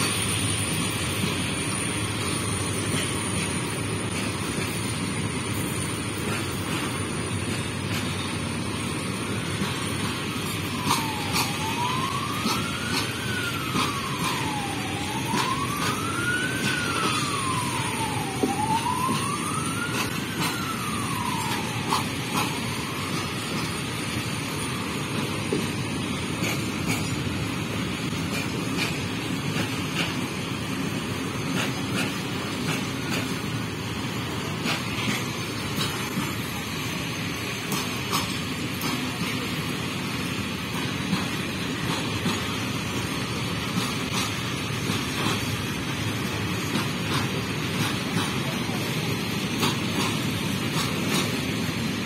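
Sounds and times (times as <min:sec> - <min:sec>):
train wheels rumbling on rail: 0:00.0 - 0:52.0
siren wailing: 0:10.1 - 0:26.4.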